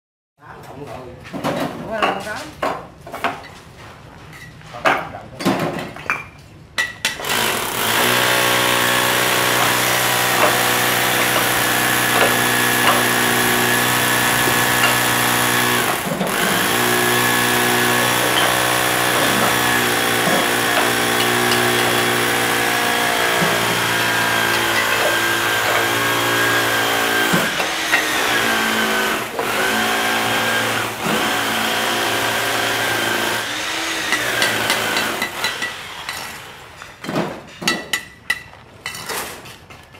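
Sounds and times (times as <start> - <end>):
concrete mixer running: 7.2 - 36.7.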